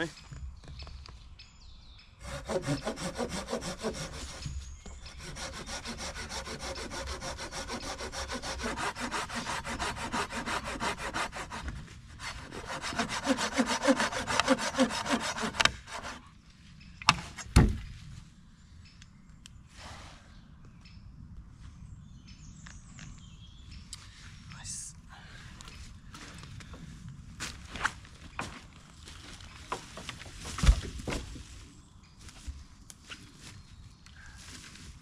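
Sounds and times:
hand saw cutting branch: 0:02.2 - 0:16.3.

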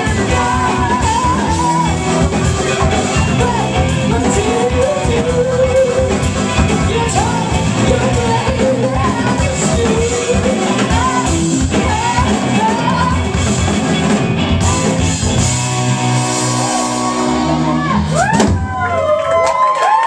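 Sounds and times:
woman singing: 0:00.0 - 0:13.5
live horn band playing: 0:00.0 - 0:18.2
audience cheering and whooping: 0:16.0 - 0:20.0.

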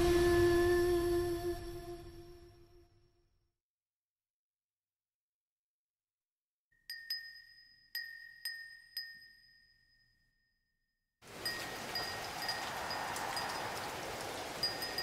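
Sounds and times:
rain hissing: 0:00.0 - 0:01.2, 0:11.2 - 0:15.0
wind chime ringing: 0:06.9 - 0:10.4, 0:11.4 - 0:15.0.

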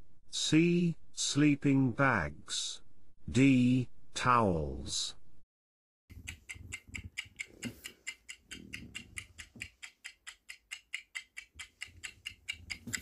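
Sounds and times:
rapid clock ticking: 0:06.1 - 0:13.0.

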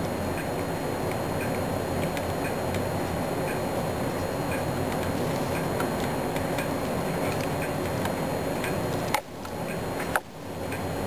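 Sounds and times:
steady hiss: 0:00.0 - 0:11.0
faint regular ticking: 0:00.1 - 0:11.0.

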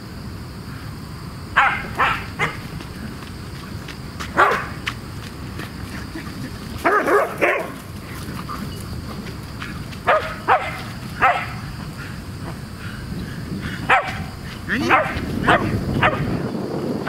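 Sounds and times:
dog barking: 0:01.6 - 0:02.6, 0:04.4 - 0:04.8, 0:06.8 - 0:07.8, 0:10.1 - 0:11.7, 0:13.9 - 0:16.4.

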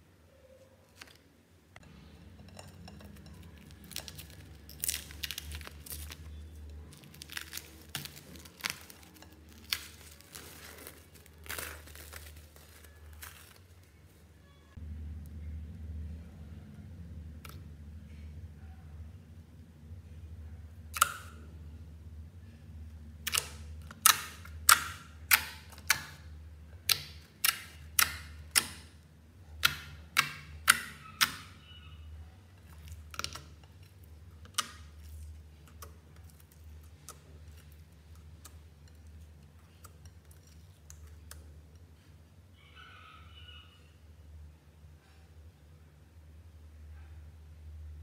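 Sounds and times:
faint low hum: 0:00.0 - 0:48.0
fingertips popping slime: 0:23.2 - 0:28.9, 0:29.6 - 0:31.5.

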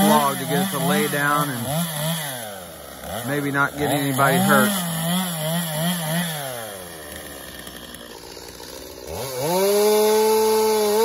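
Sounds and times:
chainsaw cutting and revving: 0:00.0 - 0:11.0.

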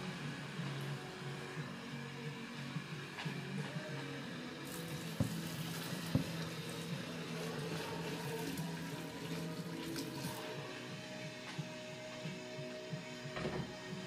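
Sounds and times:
background music: 0:00.0 - 0:14.0
water pouring into plastic bin: 0:04.6 - 0:10.5.

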